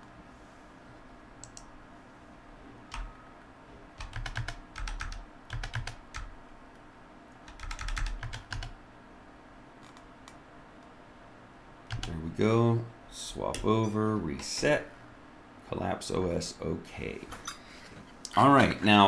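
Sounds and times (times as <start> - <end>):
computer keyboard keystrokes: 2.9 - 3.1, 4.0 - 6.3, 7.5 - 8.8, 11.9 - 12.1.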